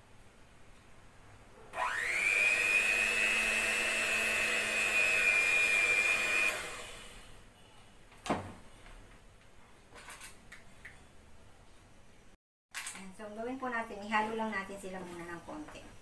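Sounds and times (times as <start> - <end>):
electric hand mixer whining: 1.8 - 7.4.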